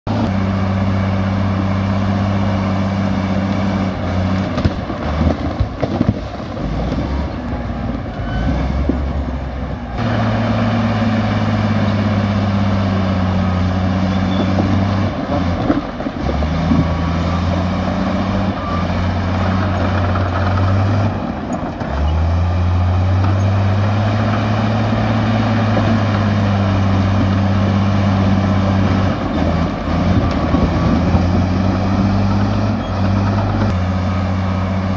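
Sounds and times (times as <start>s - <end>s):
bulldozer diesel engine under load: 0.1s - 34.9s
knocks and rattles of rock: 4.0s - 7.3s, 14.3s - 18.6s, 19.2s - 22.1s, 23.2s - 33.7s.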